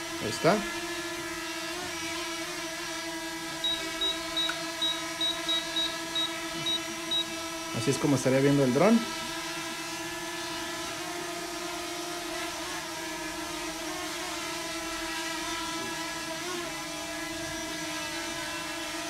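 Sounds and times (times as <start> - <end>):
drone propellers whirring: 3.2 - 11.1.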